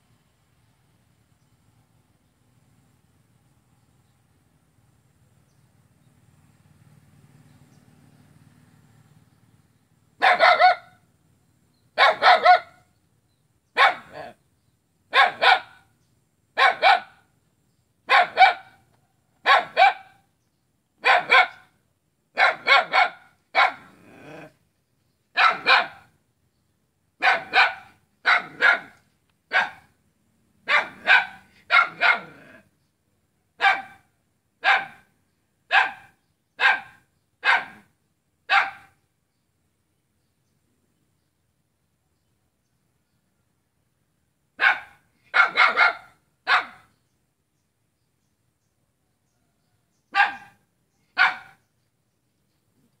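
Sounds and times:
small dog barking: 10.2s - 11.0s, 12.0s - 12.9s, 13.8s - 14.4s, 15.1s - 15.9s, 16.6s - 17.3s, 18.1s - 18.8s, 19.4s - 20.2s, 21.0s - 21.7s, 22.3s - 24.5s, 25.3s - 26.2s, 27.2s - 30.0s, 30.6s - 32.7s, 33.6s - 35.1s, 35.7s - 39.0s, 44.6s - 46.9s, 50.1s - 51.6s.

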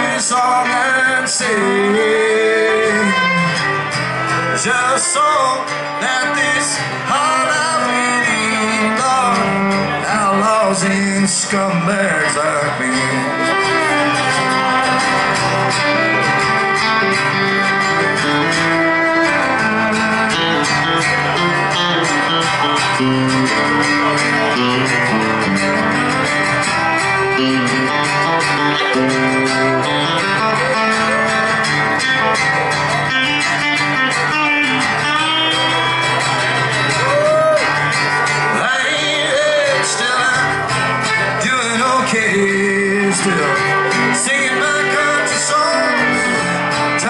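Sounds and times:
country band playing: 0.0s - 47.0s
electric guitar: 0.0s - 47.0s
strummed acoustic guitar: 0.0s - 47.0s.

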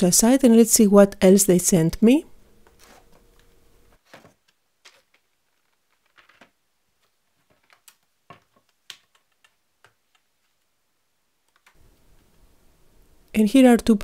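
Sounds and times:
plastic packaging rustling: 2.7s - 3.3s, 3.9s - 9.6s.

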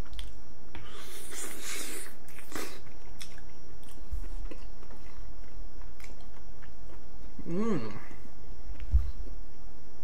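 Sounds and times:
person chewing wet food: 0.0s - 7.6s.

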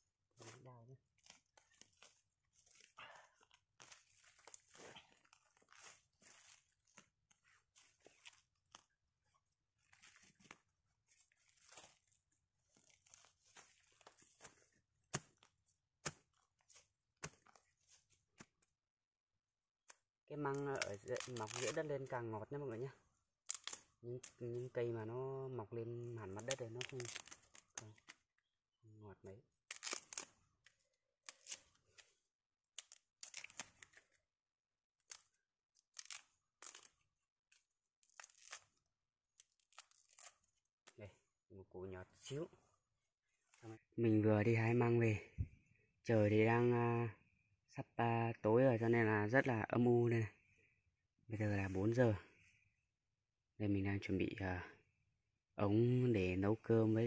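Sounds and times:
crunching and rustling in leaf litter: 0.4s - 15.5s, 20.5s - 21.9s, 26.3s - 27.9s.

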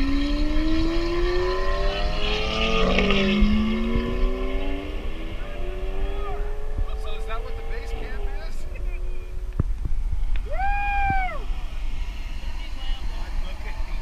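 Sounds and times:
sports car accelerating past: 0.0s - 9.4s.

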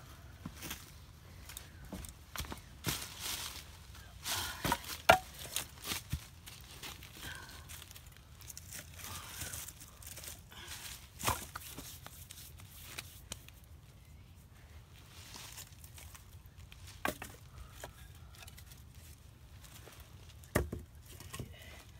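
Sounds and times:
dry leaves rustling: 2.4s - 13.3s, 15.0s - 17.0s
firewood sticks knocking together: 4.5s - 5.7s, 17.0s - 18.6s.

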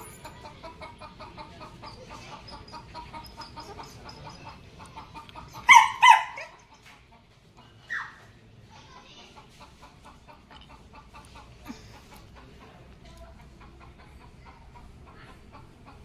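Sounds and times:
parakeets chattering: 0.0s - 8.1s.

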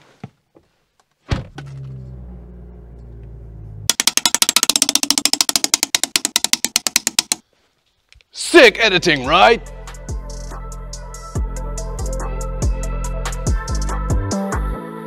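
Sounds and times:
car engine starting and idling: 1.4s - 3.9s
rapid even clicking: 3.9s - 7.4s.

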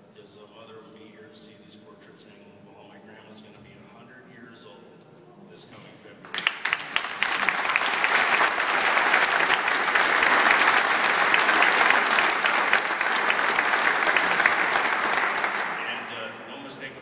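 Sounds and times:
audience applause: 6.3s - 16.4s.

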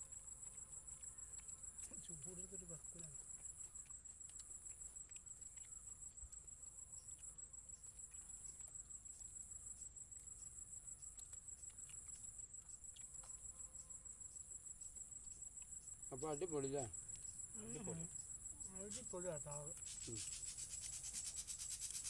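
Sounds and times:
crickets trilling: 0.0s - 22.0s
faint clicks: 0.4s - 6.5s, 10.2s - 13.5s.

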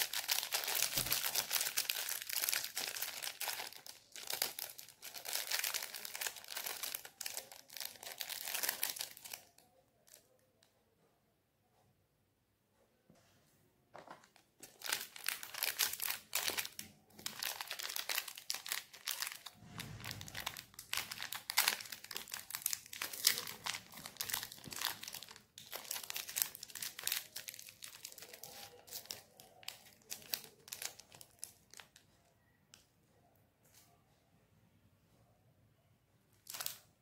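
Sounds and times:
plastic wrapper crinkling: 0.0s - 10.4s, 14.0s - 32.0s, 36.4s - 36.9s.

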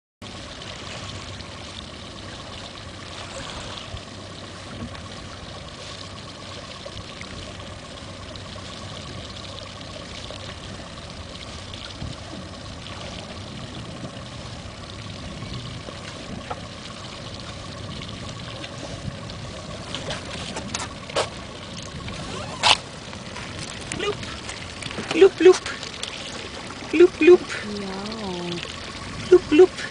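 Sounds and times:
steady hum: 0.2s - 29.9s
water lapping against boat hull: 0.2s - 29.9s.

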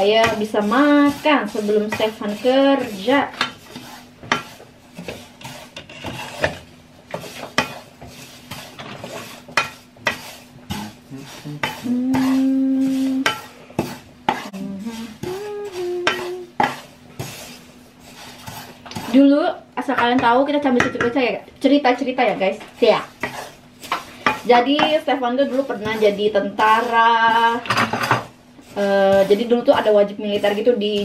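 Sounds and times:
steady low hum: 0.0s - 31.0s
dishes and cutlery clinking: 27.6s - 28.3s.

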